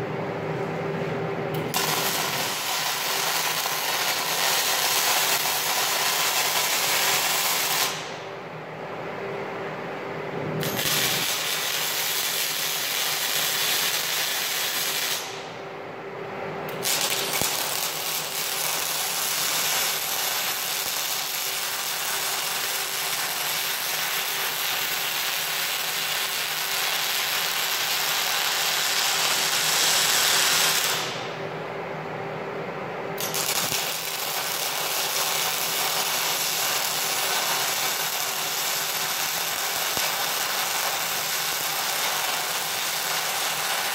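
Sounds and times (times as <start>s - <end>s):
steady low hum: 0.0s - 11.6s, 15.2s - 20.9s, 28.2s - 34.8s
welding arc crackling: 1.6s - 8.2s, 10.6s - 15.5s, 16.7s - 31.3s, 33.2s - 43.9s.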